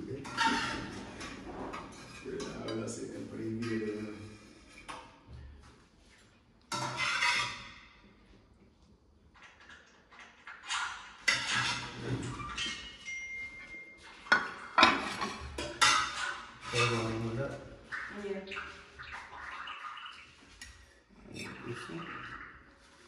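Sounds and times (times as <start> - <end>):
metal spoon clinking on plates: 12.6 - 17.0
high ringing tone: 13.0 - 14.3.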